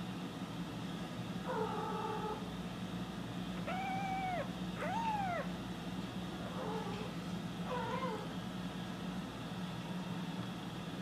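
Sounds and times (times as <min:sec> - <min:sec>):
steady low hum: 0:00.0 - 0:11.0
kitten meowing: 0:03.6 - 0:05.5.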